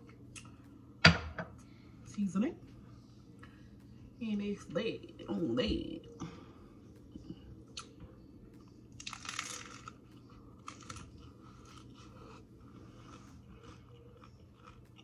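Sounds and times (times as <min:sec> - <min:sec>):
taco shell crunching: 0:08.6 - 0:15.0.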